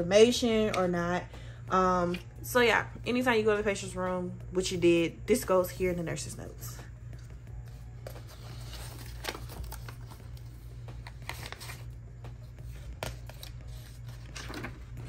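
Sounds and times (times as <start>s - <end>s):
steady low hum: 0.0s - 15.0s
page turning: 7.6s - 15.0s
paper rustling and sliding: 12.6s - 15.0s.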